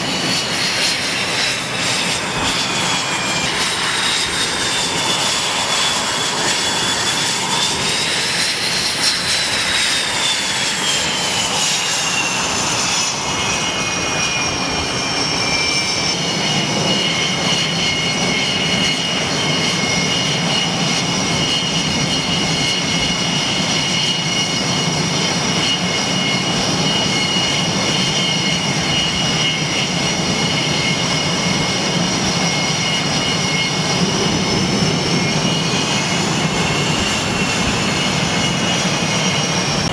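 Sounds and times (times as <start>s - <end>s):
jet engine roar with turbine whine: 0.0s - 39.9s.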